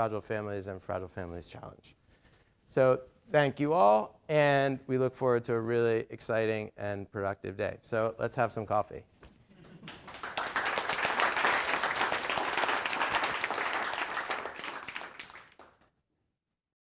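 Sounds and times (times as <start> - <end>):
audience applauding: 9.6 - 15.8.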